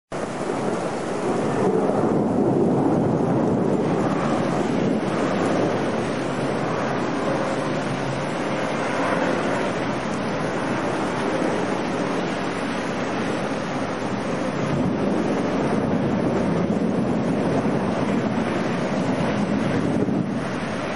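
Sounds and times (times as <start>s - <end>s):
storm wind through trees: 0.1s - 20.9s
wind rumbling on microphone: 0.1s - 20.9s.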